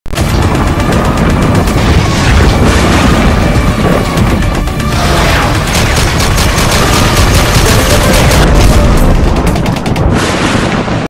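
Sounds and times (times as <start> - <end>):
explosion booms: 0.2 - 9.3
loud music: 0.2 - 10.2
gunfire: 4.9 - 11.0.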